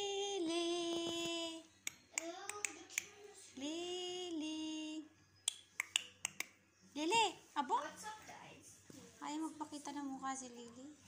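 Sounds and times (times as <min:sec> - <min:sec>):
sharp clicks: 0:01.8 - 0:03.2, 0:05.5 - 0:06.6.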